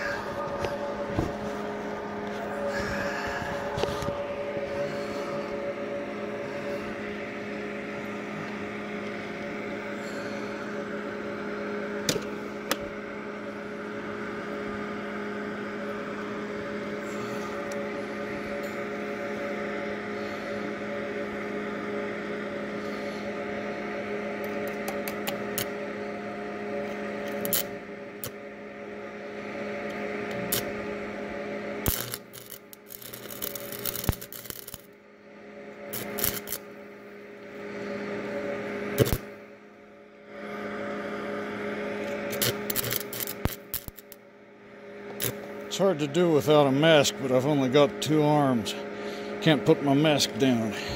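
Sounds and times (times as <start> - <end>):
welder humming: 0.0 - 50.9
welding arc crackling: 27.3 - 28.4, 30.3 - 30.8, 31.8 - 35.0, 35.9 - 36.7, 39.0 - 39.3, 42.0 - 44.2, 45.1 - 48.2.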